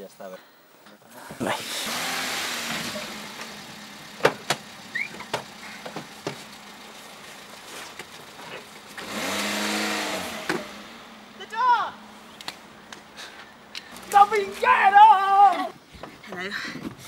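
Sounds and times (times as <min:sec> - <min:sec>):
car engine pulling away: 0:01.3 - 0:14.2.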